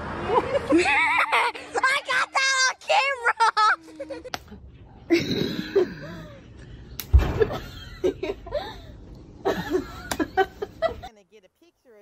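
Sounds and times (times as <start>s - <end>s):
bursts of laughter: 0.2s - 1.8s
sudden thump: 7.1s - 7.6s.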